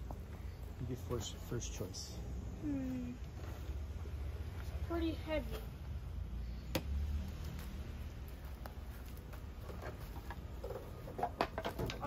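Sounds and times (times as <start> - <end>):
wooden shields knocking: 10.7 - 12.0.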